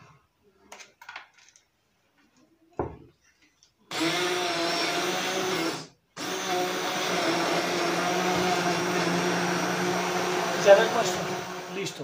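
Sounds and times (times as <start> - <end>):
hand blender motor whine: 3.9 - 12.0.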